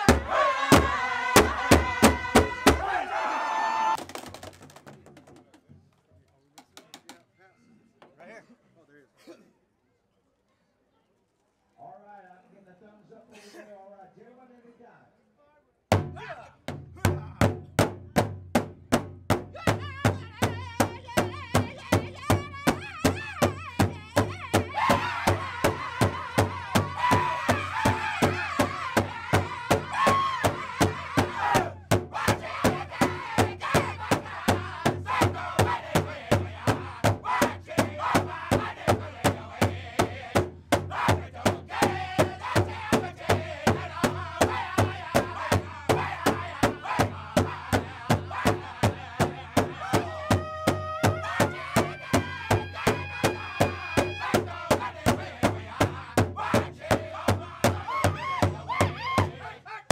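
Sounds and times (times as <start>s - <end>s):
large drum beating: 0.0s - 2.9s, 15.9s - 59.4s
group singing loudly: 0.0s - 4.0s, 24.2s - 59.9s.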